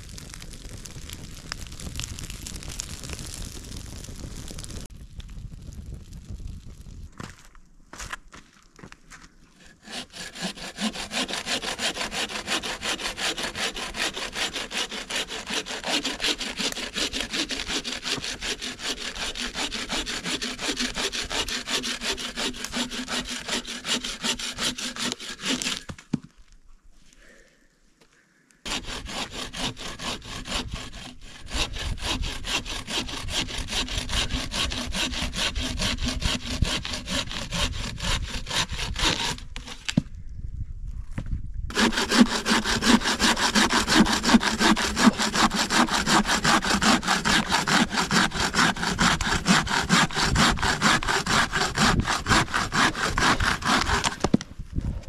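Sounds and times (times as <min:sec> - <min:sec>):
hand saw cutting log: 0:09.6 - 0:26.1, 0:28.7 - 0:40.0, 0:41.7 - 0:54.4.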